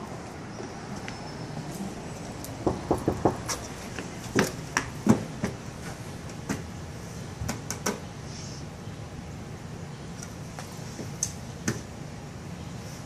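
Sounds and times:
steady background noise: 0.0 - 13.0
shoes scuffing on metal: 3.0 - 6.8.

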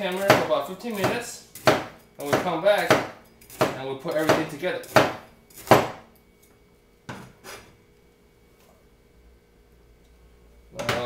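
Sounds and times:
cleaver chopping on cutting board: 0.1 - 6.0.

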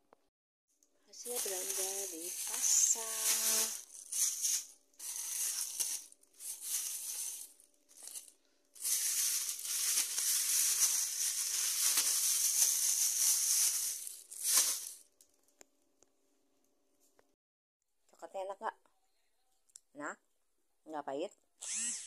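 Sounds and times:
plastic bags rustling: 1.1 - 15.2.

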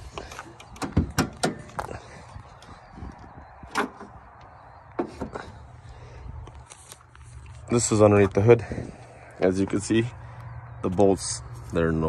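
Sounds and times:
car hood metal clicks: 0.6 - 1.9.

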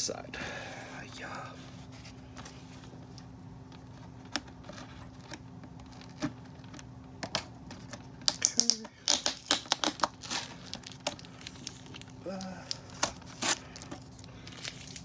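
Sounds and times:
tape peeling off cardboard: 3.8 - 6.9, 7.7 - 15.0.

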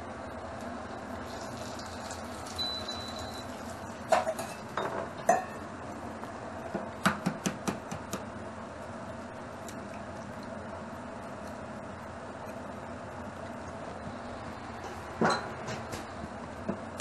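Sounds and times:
steady low hum: 0.0 - 17.0
steel bowl clanking on rack: 4.1 - 5.6.

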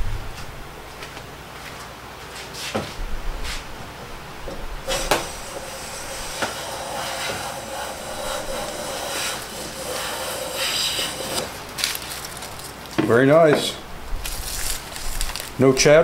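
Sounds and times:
hand plane cutting wood shaving: 4.9 - 11.6.

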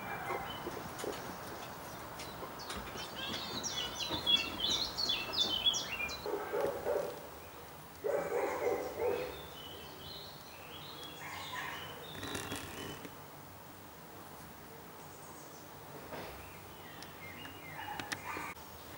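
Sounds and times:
lower pitched bird calls: 2.6 - 6.4.

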